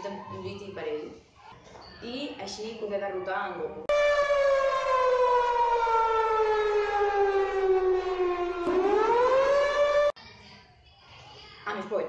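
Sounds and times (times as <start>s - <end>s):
siren sliding in pitch: 3.9s - 10.2s.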